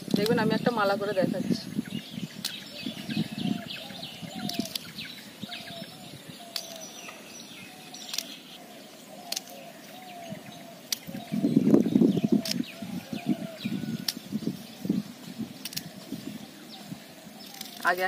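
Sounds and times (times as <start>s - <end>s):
faint high bird chirps: 0.2s - 18.0s
sharp clicks: 4.4s - 4.9s, 6.5s - 7.2s, 8.0s - 8.4s, 9.2s - 9.6s, 10.9s - 11.1s, 15.6s - 15.9s.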